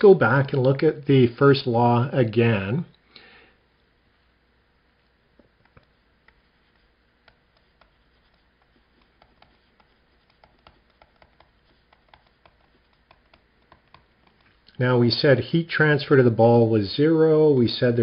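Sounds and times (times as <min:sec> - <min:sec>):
stylus tapping on tablet screen: 0:05.4 - 0:14.6.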